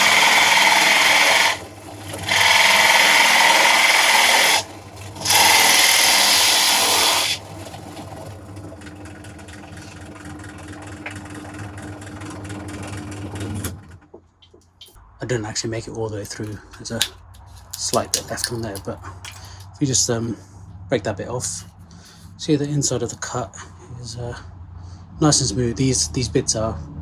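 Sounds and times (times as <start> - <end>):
drill press boring into wood: 0.0 - 13.9
drill press motor humming: 0.0 - 14.1.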